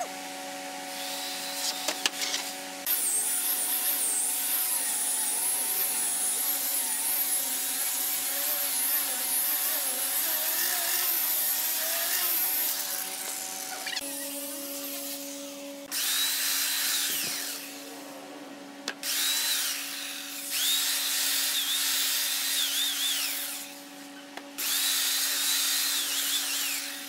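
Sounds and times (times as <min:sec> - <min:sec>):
rotary sander whine on wood: 0:00.0 - 0:27.0
steady hum: 0:17.0 - 0:19.1.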